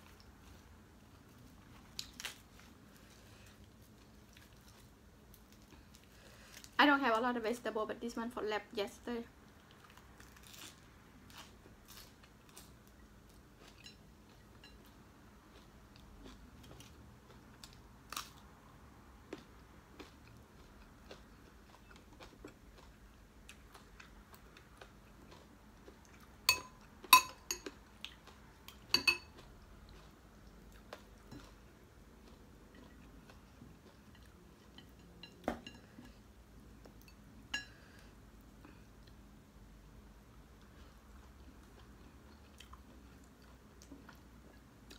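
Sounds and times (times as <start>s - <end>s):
person chewing: 9.6s - 18.4s, 19.3s - 35.0s, 40.5s - 44.9s
plates and dishes clinking: 26.5s - 27.6s, 29.0s - 29.3s.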